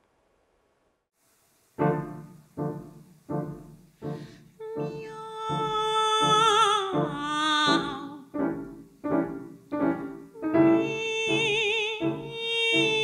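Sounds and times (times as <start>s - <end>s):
piano chords: 1.8s - 13.0s
woman singing operatically: 4.6s - 8.5s, 10.4s - 13.0s.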